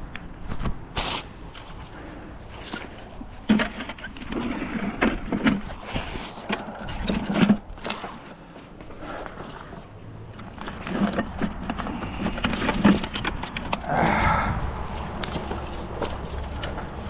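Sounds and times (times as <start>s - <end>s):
scrap metal rattling in bucket: 2.5s - 8.3s, 10.3s - 13.8s.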